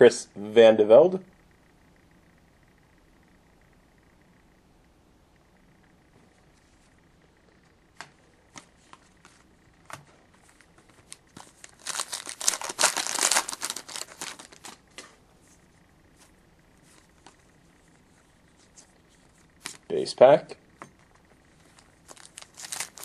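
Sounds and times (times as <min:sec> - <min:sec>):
wrapper tearing and crinkling: 0:11.0 - 0:14.8, 0:22.0 - 0:23.0.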